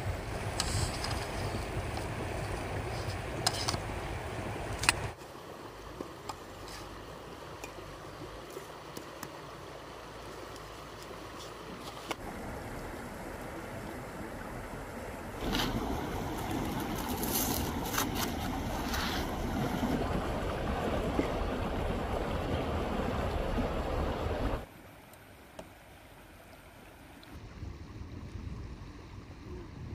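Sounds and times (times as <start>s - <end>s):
wind noise: 0.0s - 5.2s, 27.4s - 29.9s
river rushing: 0.0s - 27.2s.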